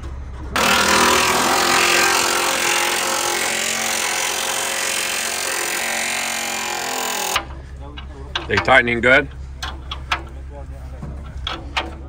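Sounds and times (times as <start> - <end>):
power tool running steadily: 0.6 - 7.5.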